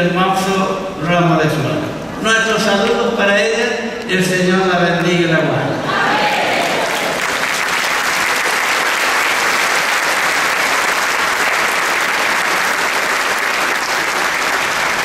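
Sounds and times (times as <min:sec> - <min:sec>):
congregation applauding: 0:06.4 - 0:15.0.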